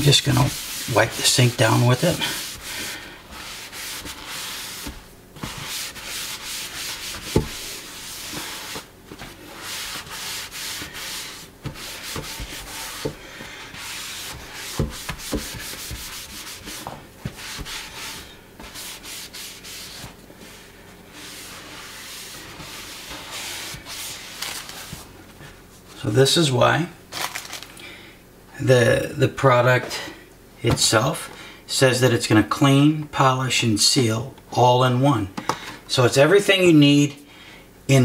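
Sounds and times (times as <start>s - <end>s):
towel rubbing on sink: 0.0s - 25.2s.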